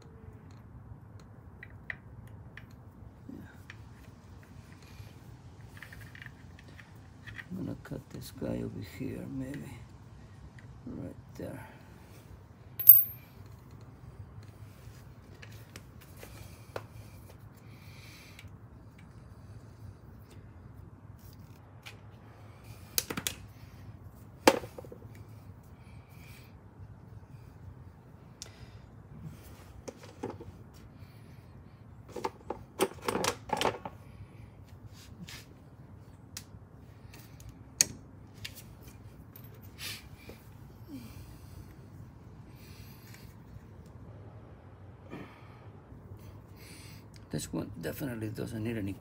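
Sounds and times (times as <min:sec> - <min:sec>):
low steady hum: 0:00.0 - 0:32.6.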